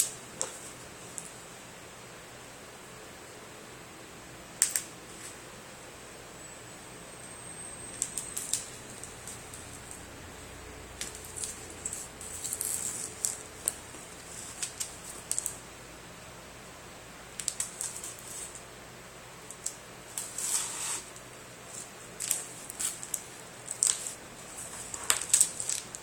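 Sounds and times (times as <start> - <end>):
packing tape and cardboard crackling: 7.8 - 10.1, 10.9 - 15.6, 17.4 - 18.7, 19.4 - 26.0.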